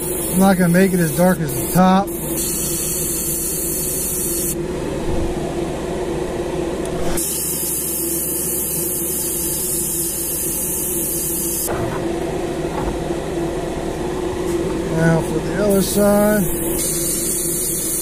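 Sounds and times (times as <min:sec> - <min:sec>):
airbrush hissing: 0:00.0 - 0:04.6, 0:07.2 - 0:11.7, 0:15.6 - 0:18.0
steady motor hum: 0:00.0 - 0:18.0.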